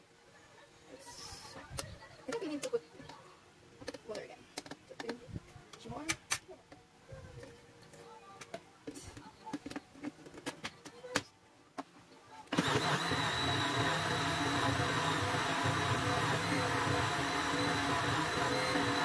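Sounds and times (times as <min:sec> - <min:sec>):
blender running with high whine: 0:12.5 - 0:19.0.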